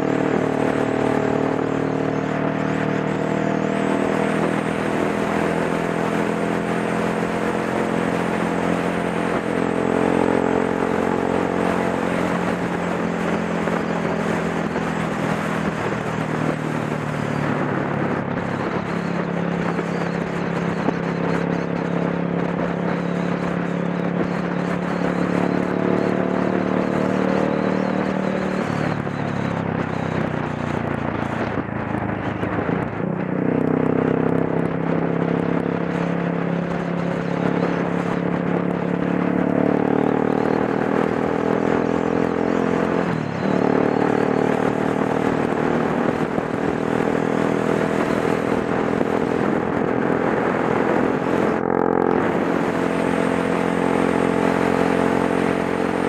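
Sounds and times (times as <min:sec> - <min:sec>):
motorcycle engine running: 0:00.0 - 0:56.0
wind rush over microphone: 0:00.0 - 0:56.0.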